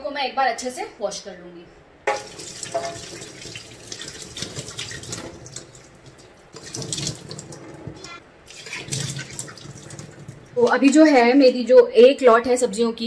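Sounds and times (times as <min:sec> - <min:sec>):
tap running into steel sink: 0:02.1 - 0:03.4
water splashing on vegetables: 0:02.1 - 0:07.7, 0:08.5 - 0:10.6.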